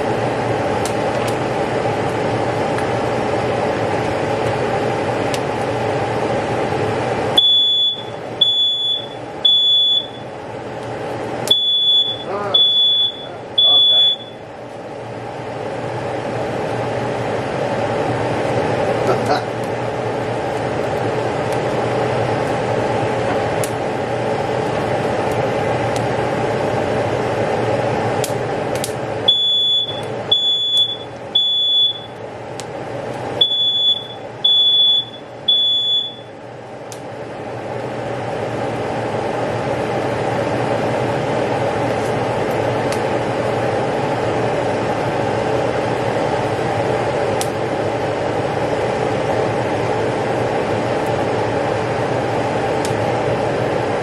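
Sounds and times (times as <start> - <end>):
steady hum: 0.0 - 54.0
smoke alarm beeping: 7.4 - 10.3, 11.5 - 14.5, 29.2 - 32.2, 33.4 - 36.4.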